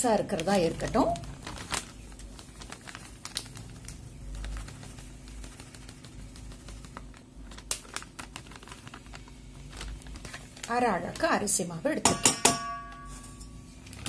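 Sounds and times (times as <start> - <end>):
plastic packet crinkling: 0.0 - 12.0
flour pouring with light clicks: 1.2 - 11.6.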